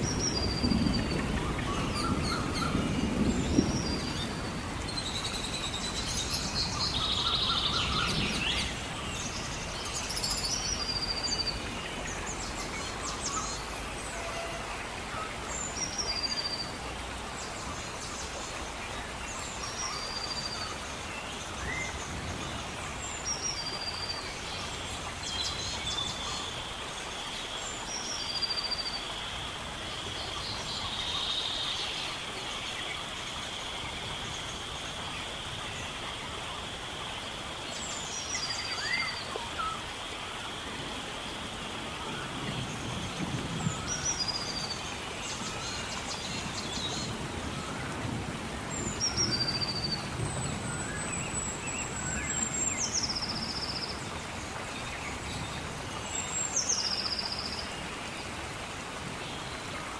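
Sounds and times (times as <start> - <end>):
steady background hiss: 0.0 - 59.9.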